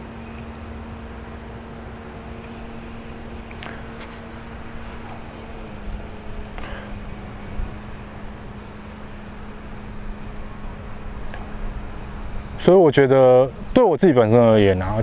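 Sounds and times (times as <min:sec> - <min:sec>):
small motor humming: 0:00.0 - 0:15.0.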